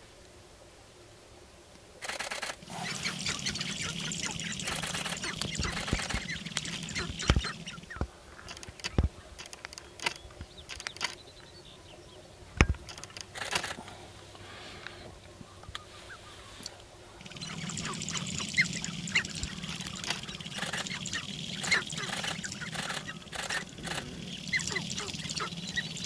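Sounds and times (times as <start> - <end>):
grouse clucking and cackling: 2.0 - 11.2, 15.2 - 26.0.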